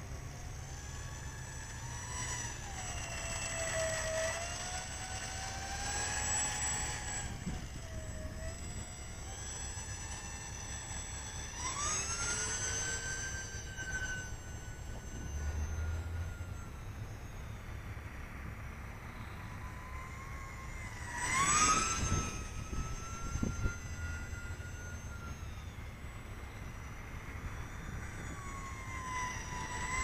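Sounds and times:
model plane electric motors whining: 0:00.0 - 0:30.0
wind rumble on microphone: 0:02.6 - 0:10.8, 0:20.5 - 0:25.5.

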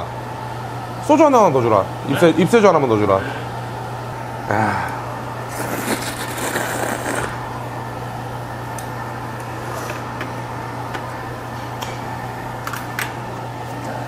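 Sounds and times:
steady low hum: 0:00.0 - 0:14.0
slurping noodles: 0:05.5 - 0:07.4.

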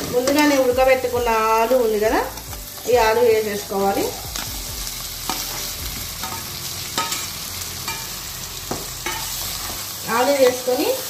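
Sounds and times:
food sizzling in a pan: 0:00.0 - 0:11.0
metal spoon clinking and scraping: 0:05.2 - 0:10.6.

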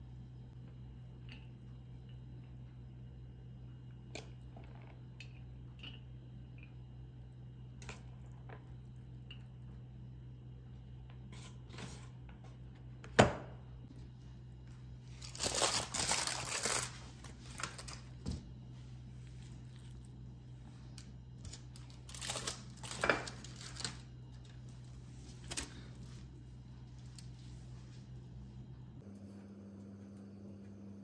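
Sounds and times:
low steady hum: 0:00.0 - 0:31.0
crinkling: 0:15.1 - 0:18.2, 0:20.9 - 0:27.5.

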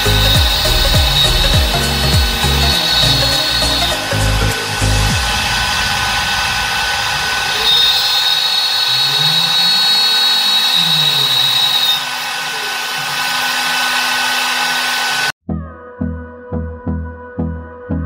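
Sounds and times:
slow low rising and falling tones: 0:00.0 - 0:08.5
high thin squeal: 0:00.0 - 0:15.3
router spindle whine milling metal: 0:00.0 - 0:15.3.

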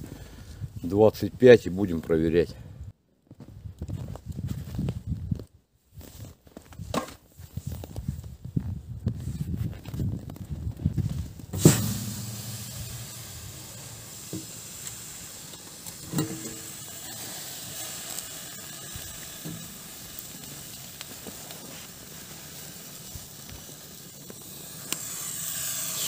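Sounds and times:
sizzling hiss: 0:11.4 - 0:26.0
metal lid clanking: 0:11.6 - 0:14.7, 0:15.8 - 0:17.1.

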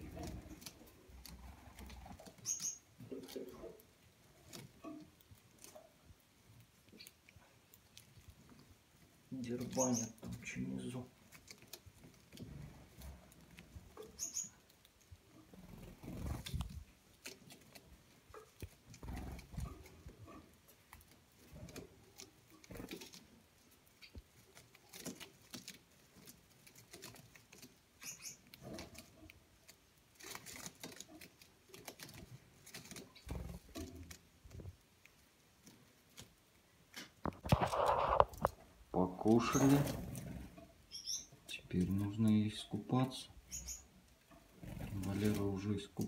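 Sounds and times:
birds pecking and husking seeds: 0:00.0 - 0:46.0
bird chirps: 0:02.4 - 0:02.9, 0:09.7 - 0:10.2, 0:14.0 - 0:14.6, 0:28.0 - 0:28.5, 0:40.9 - 0:41.4, 0:43.4 - 0:44.0.

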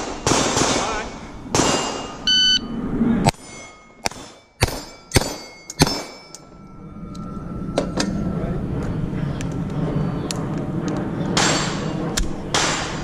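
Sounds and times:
pistol shots: 0:00.0 - 0:02.1, 0:12.5 - 0:13.0
shot timer beep: 0:02.3 - 0:02.6
steel plate ringing: 0:03.4 - 0:06.9.

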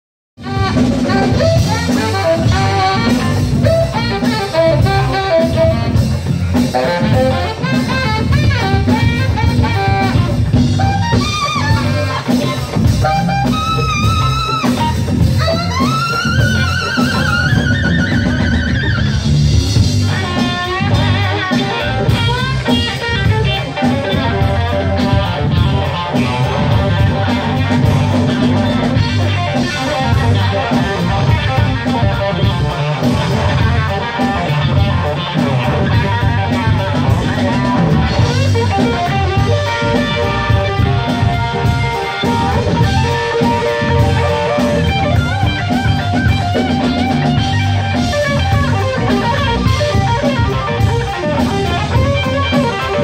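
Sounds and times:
drum kit: 0:00.4 - 0:53.0
electric bass: 0:00.4 - 0:53.0
electric guitar: 0:00.4 - 0:53.0
saxophone: 0:00.4 - 0:53.0.

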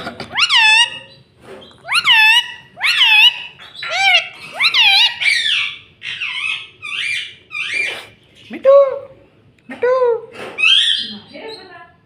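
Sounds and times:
parakeet calling: 0:00.3 - 0:08.5, 0:10.6 - 0:11.8.

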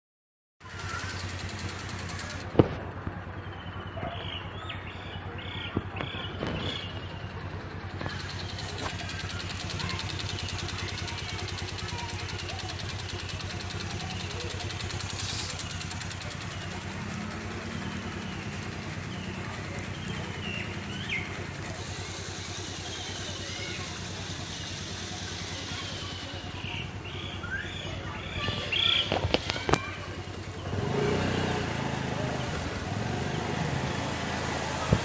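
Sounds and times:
small engine running: 0:00.6 - 0:04.3, 0:04.9 - 0:35.0.

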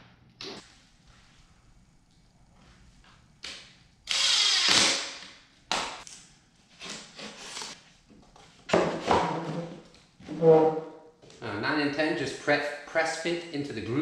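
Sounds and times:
cordless drill running: 0:04.1 - 0:05.2.

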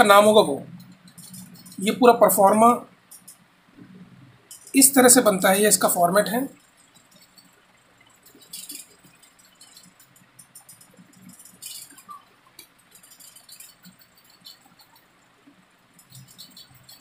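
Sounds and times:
pen and paper ticks: 0:08.2 - 0:17.0.

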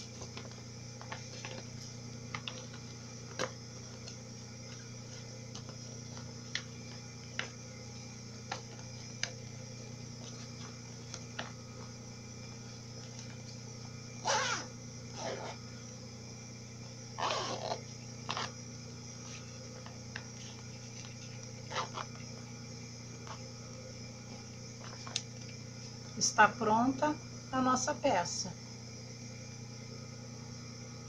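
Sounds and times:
vinyl pouch crinkling: 0:00.0 - 0:11.9, 0:17.2 - 0:23.6, 0:24.3 - 0:26.1.

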